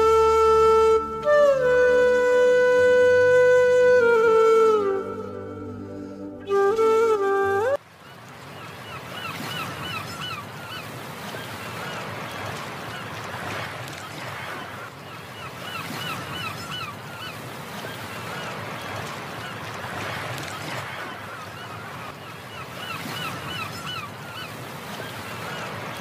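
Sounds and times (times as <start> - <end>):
flute music: 0.0 - 7.8.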